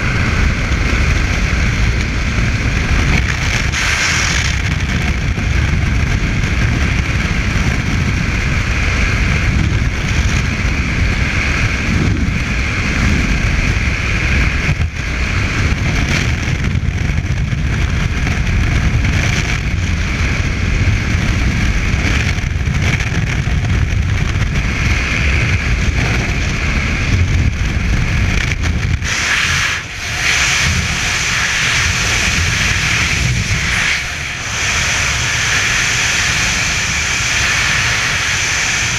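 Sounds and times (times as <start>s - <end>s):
wind roaring over microphone: 0.0s - 38.9s.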